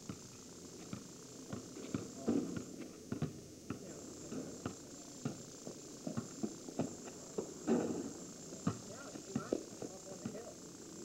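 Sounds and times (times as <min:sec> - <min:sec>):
basketball bouncing on asphalt: 0:00.0 - 0:10.5.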